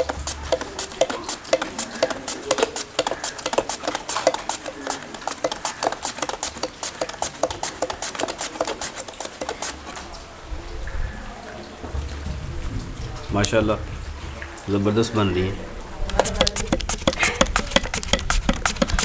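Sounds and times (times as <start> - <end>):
potato rasping on mandoline slicer: 0.0 - 9.9, 16.1 - 19.0.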